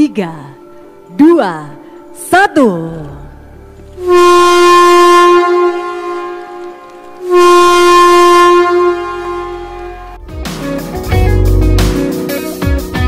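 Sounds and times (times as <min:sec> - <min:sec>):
train horn blasts: 0:04.0 - 0:10.2.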